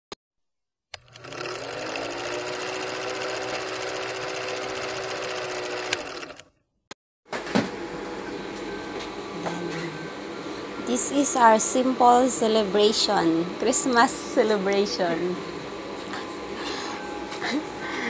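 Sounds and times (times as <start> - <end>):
film projector whirring: 1.0 - 6.5, 10.1 - 17.4
room tone: 7.3 - 18.0.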